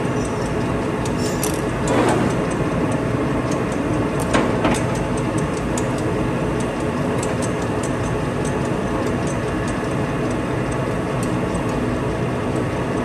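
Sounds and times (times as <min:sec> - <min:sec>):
lathe motor and gearing running: 0:00.0 - 0:13.0
light irregular ticks: 0:02.5 - 0:11.8.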